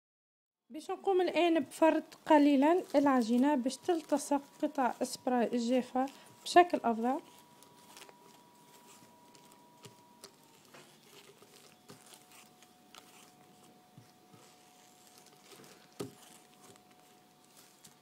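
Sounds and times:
plastic wrap crinkling: 1.6s - 18.0s.

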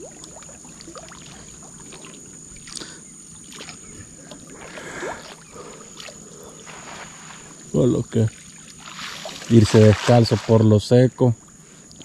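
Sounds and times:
water sloshing and splashing: 0.0s - 10.8s.

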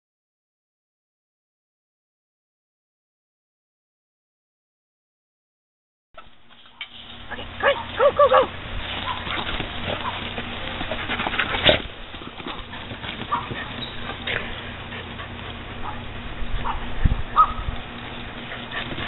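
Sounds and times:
steady low hum: 6.2s - 19.0s
dogs barking: 7.3s - 19.0s.

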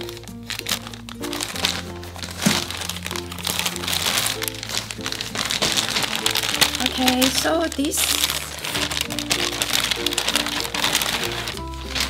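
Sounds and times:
background music: 0.0s - 12.0s
plastic mailer bag crinkling: 0.0s - 12.0s
scissors cutting plastic: 0.0s - 12.0s.

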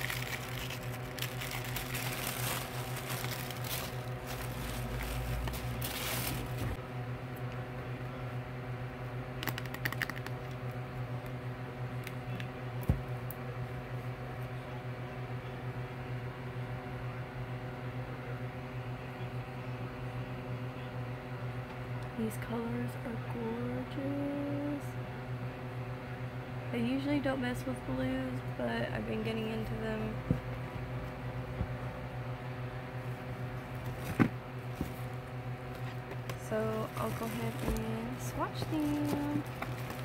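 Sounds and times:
plastic wrapping crinkling: 0.0s - 6.8s, 35.7s - 40.0s
steady low hum: 0.0s - 40.0s.

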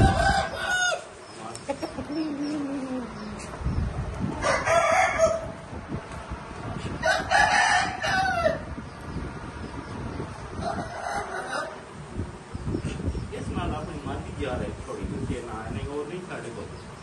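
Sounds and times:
rooster crowing: 0.0s - 1.1s, 4.4s - 5.6s, 7.0s - 8.7s, 10.6s - 11.8s.

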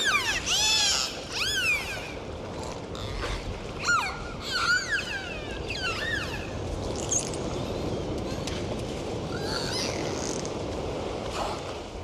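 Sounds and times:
dolphins whistling: 0.0s - 2.2s, 3.8s - 6.6s.

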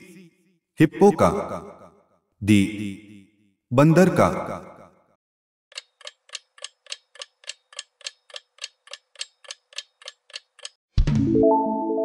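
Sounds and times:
clock ticking: 5.7s - 10.8s.

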